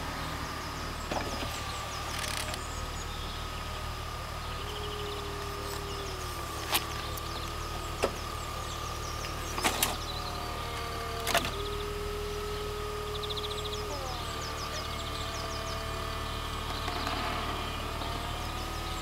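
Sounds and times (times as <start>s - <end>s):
convertible roof motor whine: 0.0s - 19.0s
roof mechanism clicks and clunks: 1.0s - 2.8s, 9.2s - 11.9s.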